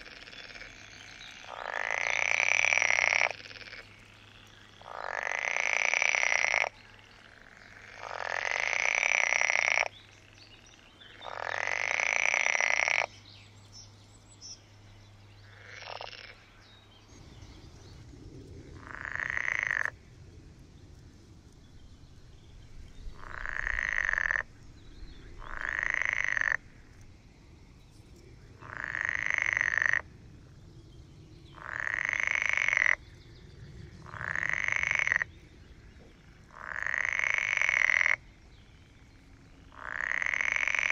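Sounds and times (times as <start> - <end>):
frogs croaking: 0.0 - 40.9.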